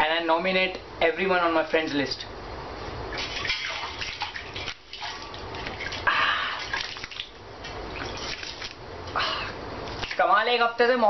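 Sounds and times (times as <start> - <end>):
water sloshing in a bucket: 3.1 - 8.9, 9.8 - 10.5.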